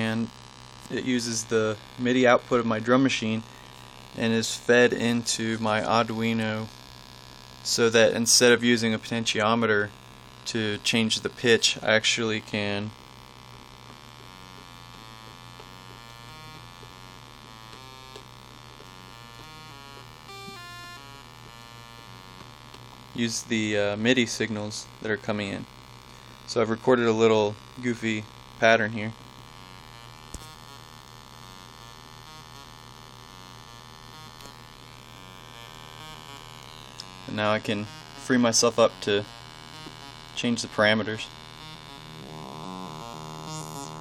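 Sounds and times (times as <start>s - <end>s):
steady electrical hum: 0.0s - 44.0s
buzzy fluttering synthesizer tone: 14.0s - 22.6s, 26.5s - 44.0s
digital synth notes: 41.5s - 44.0s.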